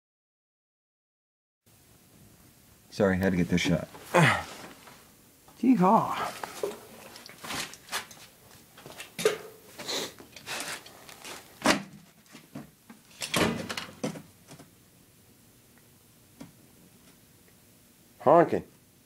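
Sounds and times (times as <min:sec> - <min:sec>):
rustling: 0:06.2 - 0:11.6.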